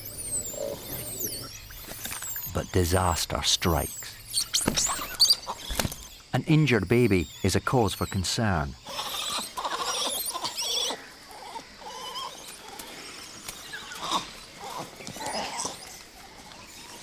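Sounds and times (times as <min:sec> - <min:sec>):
faint high chirping: 0:00.0 - 0:17.0
monkeys calling: 0:00.0 - 0:17.0.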